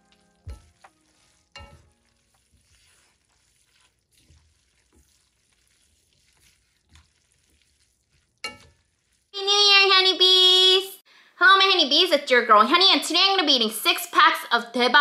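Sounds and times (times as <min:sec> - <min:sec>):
chopsticks tossing noodles in pan: 0:00.0 - 0:09.4
faint sizzle: 0:00.0 - 0:11.0.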